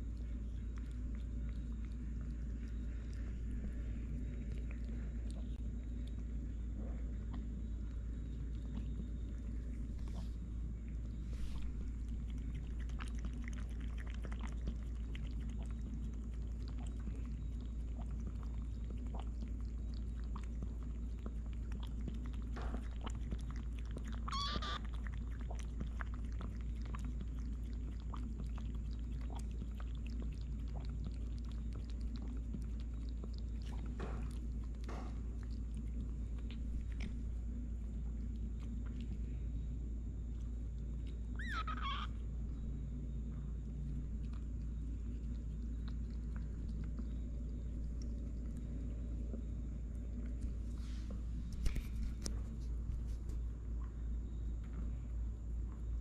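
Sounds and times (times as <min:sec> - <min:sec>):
cats crunching dry kibble: 0:00.0 - 0:39.4
steady low hum: 0:00.0 - 0:56.0
cat meowing: 0:24.3 - 0:24.9, 0:41.4 - 0:42.1.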